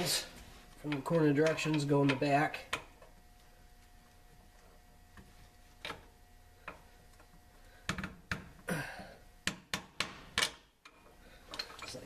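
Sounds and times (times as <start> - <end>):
metal bolts clicking and clinking: 10.3 - 12.0.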